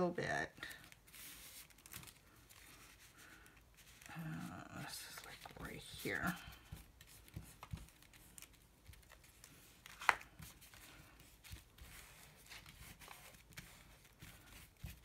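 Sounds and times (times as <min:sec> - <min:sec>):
paintbrush brushing on paper: 0:01.1 - 0:01.8, 0:02.5 - 0:08.5, 0:10.4 - 0:15.0.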